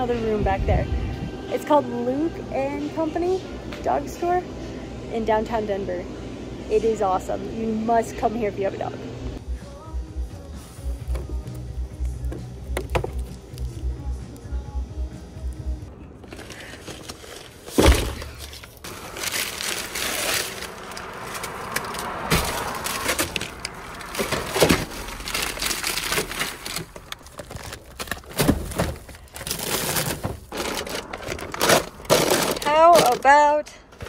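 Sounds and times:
rustling and crinkling: 16.2s - 34.0s.

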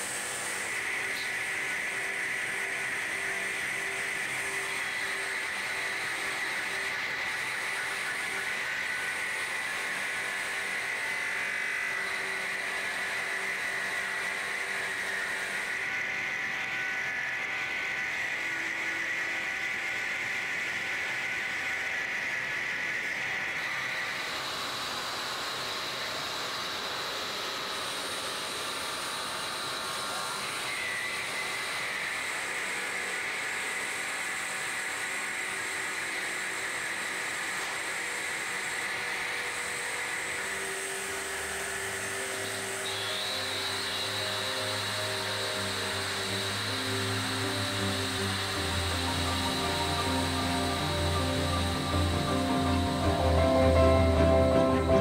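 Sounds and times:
factory machinery whining: 0.0s - 55.0s
machinery hiss: 35.9s - 55.0s.

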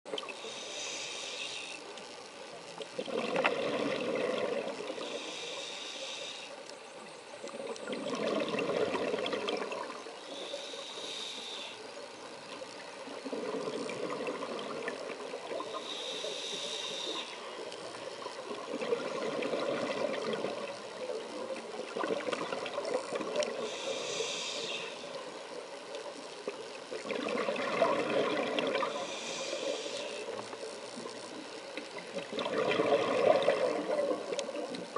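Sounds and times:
regulator inhale hiss: 0.4s - 2.1s, 4.9s - 6.7s, 10.2s - 12.0s, 15.6s - 17.7s, 23.5s - 25.7s, 28.8s - 30.6s
exhaled bubbles rushing: 3.0s - 5.0s, 7.7s - 10.1s, 13.1s - 15.7s, 18.3s - 20.8s, 21.8s - 23.6s, 26.9s - 29.0s, 32.0s - 34.5s.

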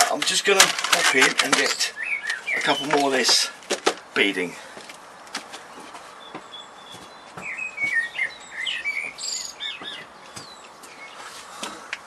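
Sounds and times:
songbird warbling: 1.8s - 3.2s, 6.2s - 11.3s.

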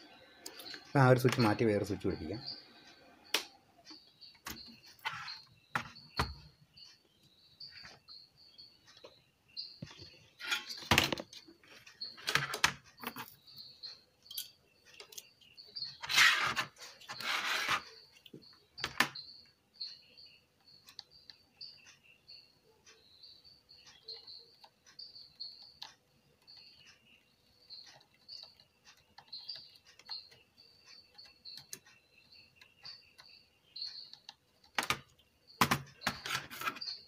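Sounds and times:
faint high chirping: 0.0s - 37.0s
clicks and knocks of handled electronics: 34.7s - 37.0s.

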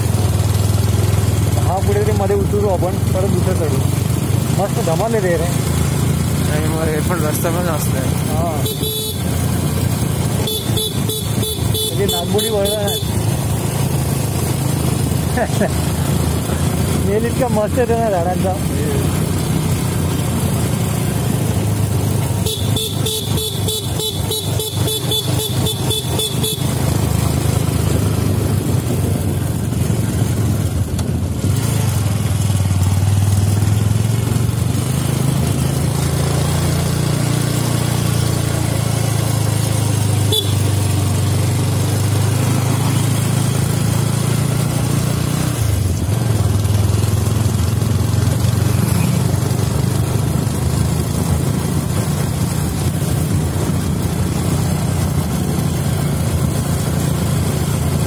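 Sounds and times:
motorcycle engine running: 0.0s - 58.0s
wind and road noise: 0.0s - 58.0s.

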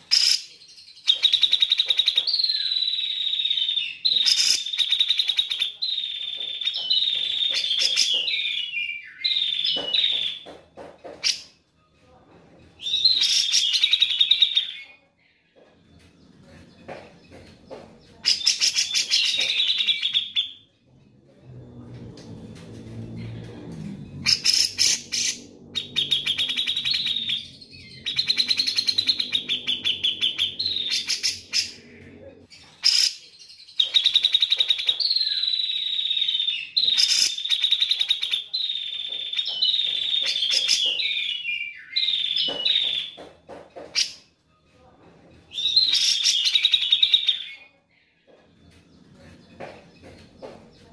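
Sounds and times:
bird trilled chatter: 24.2s - 31.8s.

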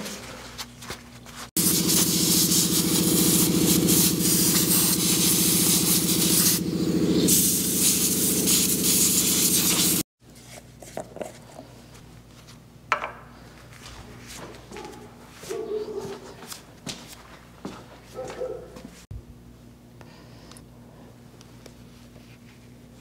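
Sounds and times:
pulsing machine drone: 1.6s - 8.9s.

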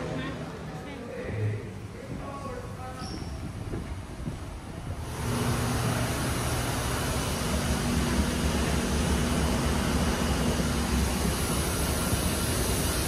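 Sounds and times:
steady rushing noise with low hum: 0.0s - 13.0s.

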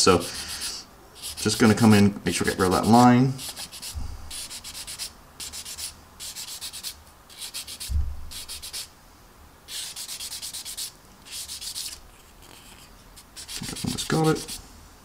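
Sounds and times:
sanding stick scratching plastic: 0.3s - 8.9s, 9.7s - 14.6s
soft low bump: 7.9s - 8.3s.

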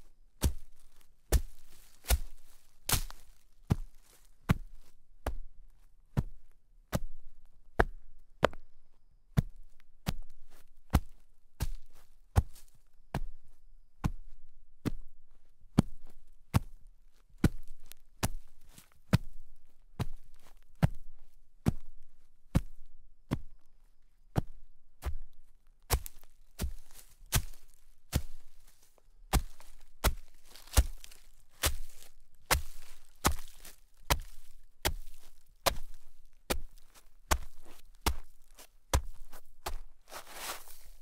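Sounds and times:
footsteps crunching in snow: 0.0s - 5.0s, 25.9s - 41.0s.

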